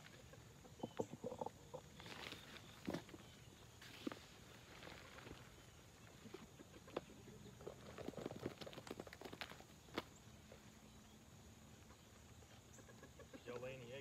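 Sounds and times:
rustling: 1.8s - 10.8s.

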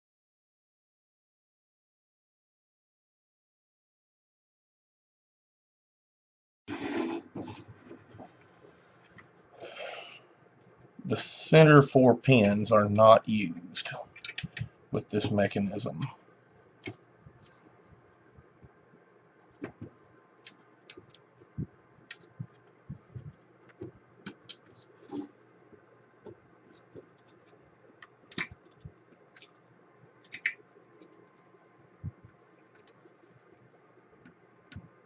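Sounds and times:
plastic connectors clicking onto pins: 14.1s - 14.7s, 30.2s - 30.6s.

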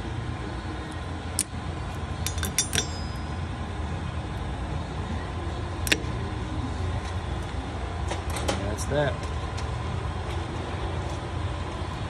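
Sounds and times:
steady low hum: 0.0s - 12.0s
pliers clicking on metal: 2.2s - 3.1s.

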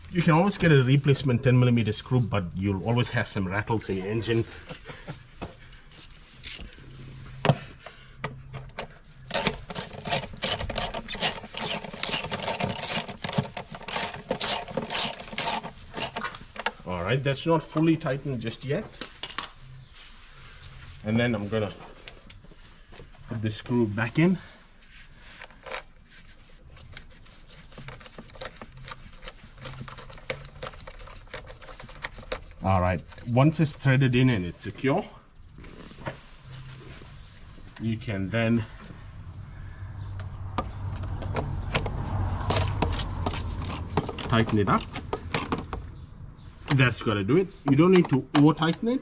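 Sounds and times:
faint rubbing and clicks: 24.8s - 34.0s.

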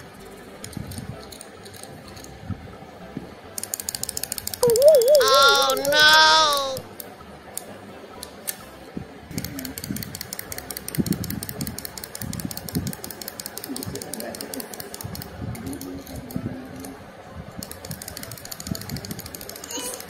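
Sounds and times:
toy mechanism clicking rapidly: 3.6s - 7.0s, 9.3s - 16.9s, 17.6s - 20.0s.

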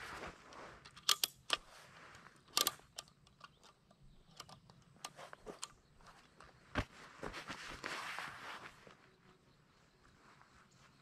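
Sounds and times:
rifle bolt clicks: 0.9s - 1.7s, 2.5s - 5.8s.

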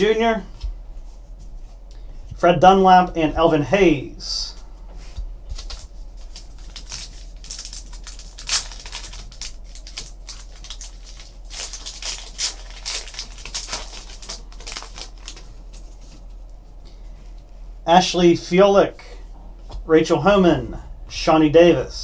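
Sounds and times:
wrapper crinkling and tearing: 5.6s - 16.0s.

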